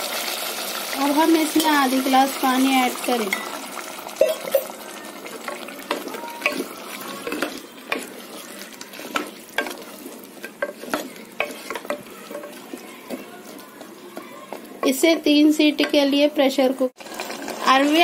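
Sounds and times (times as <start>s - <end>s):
masala sizzling: 0.0s - 18.0s
wooden spatula scraping pot: 5.3s - 16.1s.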